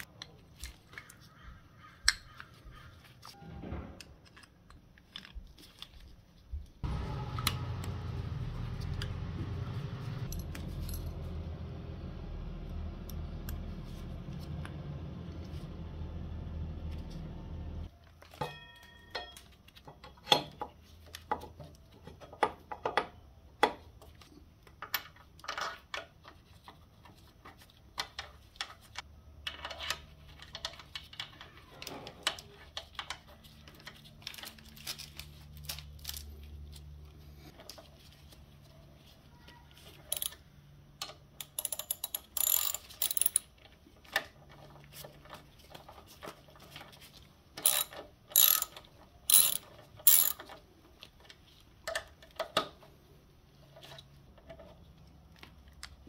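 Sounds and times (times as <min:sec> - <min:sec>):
metal parts clicking and knocking: 0:04.0 - 0:07.6, 0:18.1 - 0:36.6, 0:39.8 - 0:52.9
socket ratchet clicking: 0:41.4 - 0:43.5, 0:47.6 - 0:50.4.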